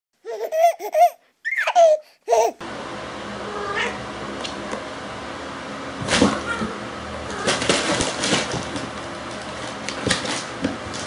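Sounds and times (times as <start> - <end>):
child-like voice giggling and babbling: 0.3 - 2.6.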